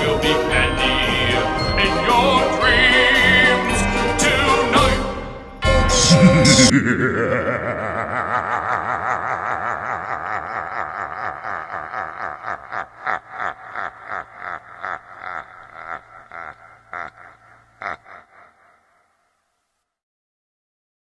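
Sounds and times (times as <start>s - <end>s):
spooky evil laugh: 5.9s - 19.3s.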